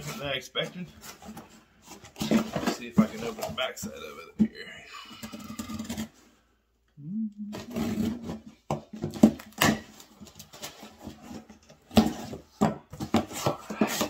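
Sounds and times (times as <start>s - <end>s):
cardboard box scraping and rustling: 0.0s - 3.7s, 7.6s - 9.2s.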